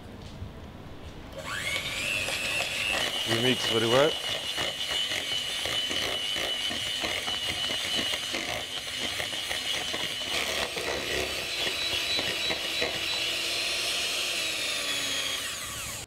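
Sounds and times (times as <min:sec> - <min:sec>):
electric mixer whining: 0:01.4 - 0:16.0
beaters rattling in bowl: 0:02.2 - 0:11.2.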